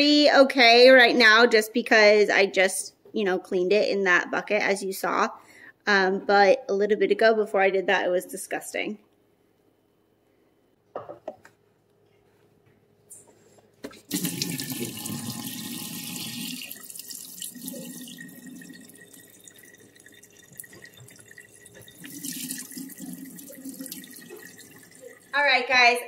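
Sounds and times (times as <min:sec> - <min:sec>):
water pouring into metal sink: 0:14.0 - 0:25.4.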